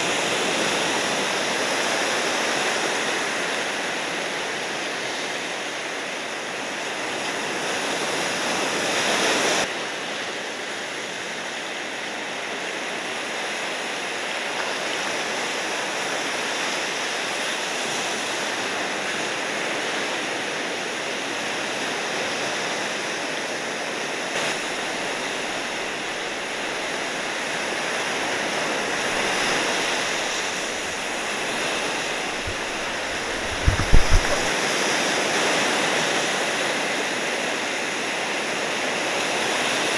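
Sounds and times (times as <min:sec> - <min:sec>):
ocean surf breaking waves: 0:00.0 - 0:39.9
low thumps: 0:32.1 - 0:34.5.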